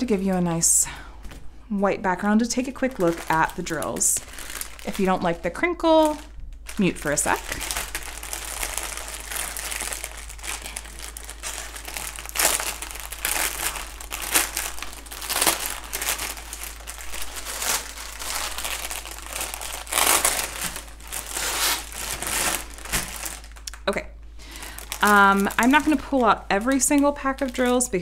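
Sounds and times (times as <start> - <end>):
plastic bag crinkling: 2.1 - 28.0
sharp plastic crackles: 2.4 - 28.0.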